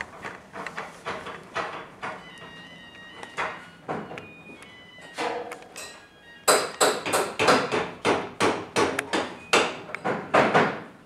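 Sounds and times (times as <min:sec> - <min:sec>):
hammer striking metal: 0:05.4 - 0:10.6.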